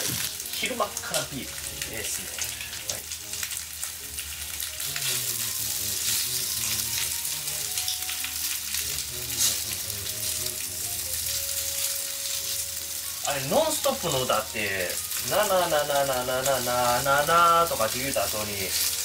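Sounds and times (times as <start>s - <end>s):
chicken sizzling in oil: 0.0s - 19.0s
tongs clicking against pan: 2.3s - 10.6s.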